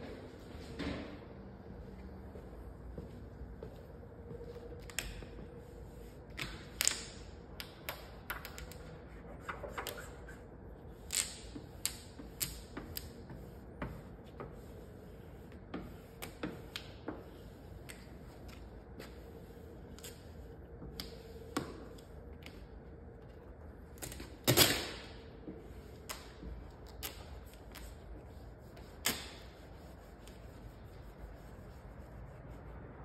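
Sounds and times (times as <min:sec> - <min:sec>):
squeegee scraping vinyl film: 0:05.9 - 0:21.8, 0:25.8 - 0:33.0.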